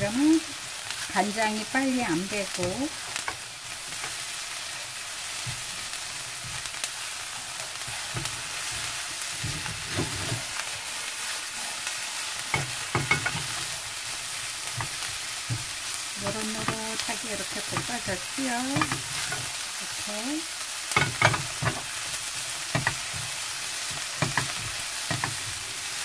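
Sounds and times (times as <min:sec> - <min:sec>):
food sizzling in oil: 0:00.0 - 0:26.0
spatula scraping and tapping pan: 0:07.8 - 0:10.6, 0:12.4 - 0:13.8, 0:14.6 - 0:19.5, 0:20.9 - 0:25.6.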